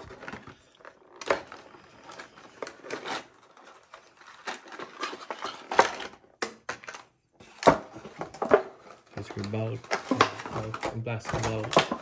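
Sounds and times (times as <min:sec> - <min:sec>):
plastic packaging crinkling: 0:00.0 - 0:07.1, 0:08.3 - 0:12.0.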